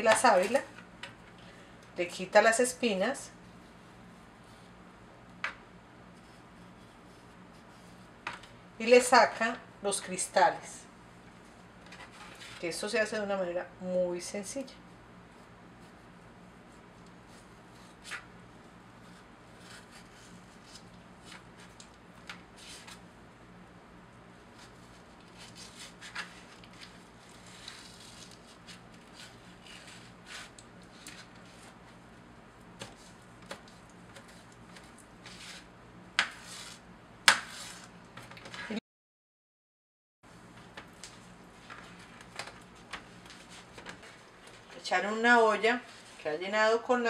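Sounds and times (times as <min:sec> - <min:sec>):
knife slicing aloe leaf: 0:24.5 - 0:31.8, 0:32.8 - 0:37.9.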